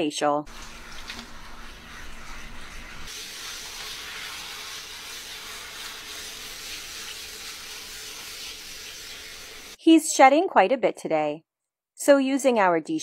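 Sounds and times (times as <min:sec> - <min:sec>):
hose sprayer spraying water: 0:00.5 - 0:09.8.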